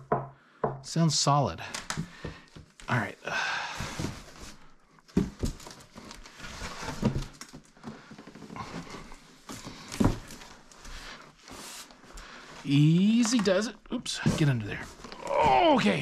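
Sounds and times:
knocks: 0:00.0 - 0:00.8
cardboard scraping and creaking: 0:03.7 - 0:16.0.

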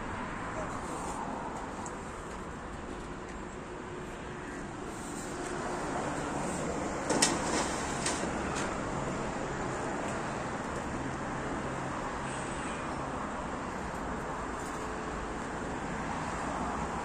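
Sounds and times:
sheet metal clicking and clattering: 0:07.0 - 0:08.8.

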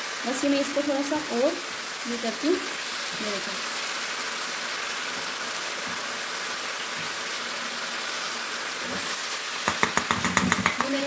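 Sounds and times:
meat sizzling in a frying pan: 0:00.0 - 0:11.0
wooden spatula turning food: 0:08.8 - 0:11.0.

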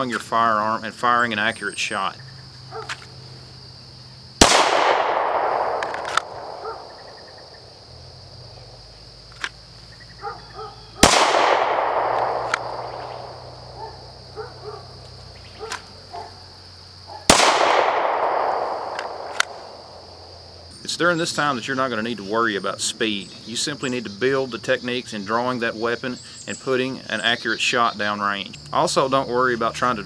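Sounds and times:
crickets chirping: 0:00.0 - 0:30.0
handgun shots with echo: 0:04.4 - 0:06.9, 0:11.0 - 0:13.4, 0:17.3 - 0:19.6.

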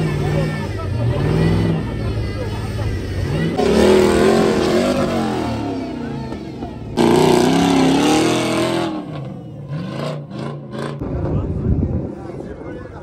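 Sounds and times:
off-road engines revving hard: 0:00.0 - 0:11.1.

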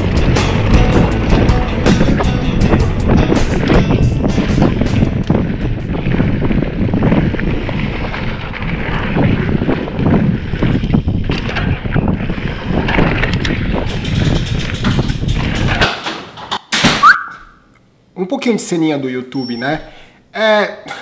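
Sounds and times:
wind buffeting microphone: 0:00.0 - 0:16.0
bike rumbling and rattling on dirt: 0:00.0 - 0:16.7.

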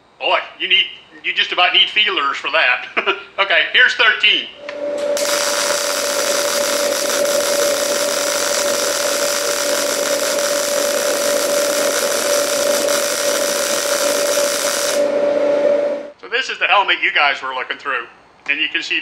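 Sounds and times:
steady hum: 0:04.6 - 0:16.2
welding arc hissing: 0:05.2 - 0:15.1.

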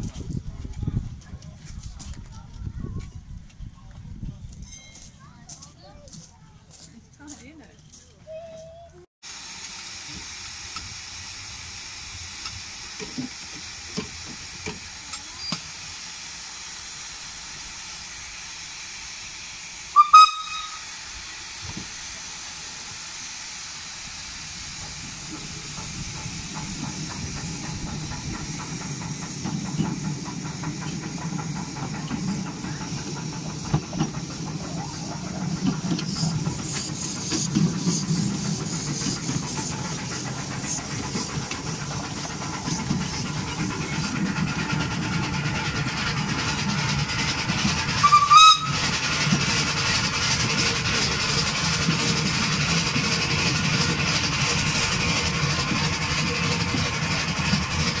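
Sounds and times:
steam locomotive running noise: 0:00.0 - 0:58.0
steam locomotive hissing steam: 0:08.3 - 0:58.0
steam whistle toot: 0:19.9 - 0:21.0, 0:48.0 - 0:49.0.

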